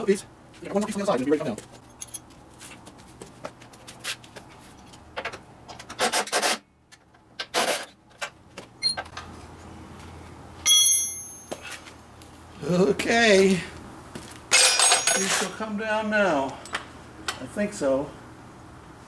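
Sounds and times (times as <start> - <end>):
tools scraping metal parts: 5.2 - 6.6, 7.4 - 8.3, 14.5 - 15.6
sharp metal clank: 14.5 - 15.5.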